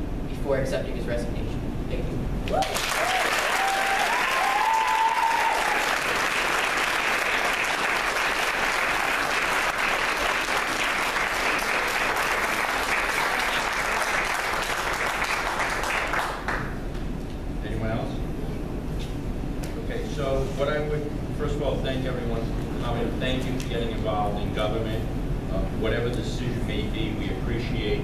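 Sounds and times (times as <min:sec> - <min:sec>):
high call over clapping: 0:02.5 - 0:16.6
audience applauding: 0:02.6 - 0:16.8.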